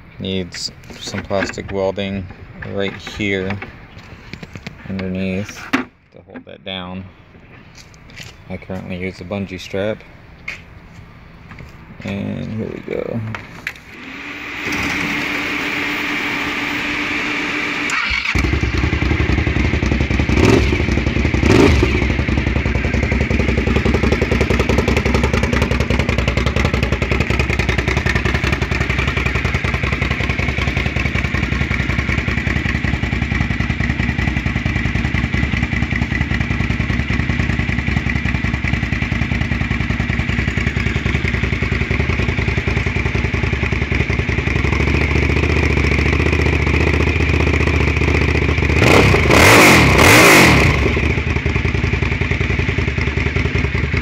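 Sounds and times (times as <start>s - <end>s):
motorcycle engine revving and idling: 0.3s - 5.5s, 12.0s - 54.0s
engine starter cranking: 13.8s - 16.3s, 17.8s - 19.0s.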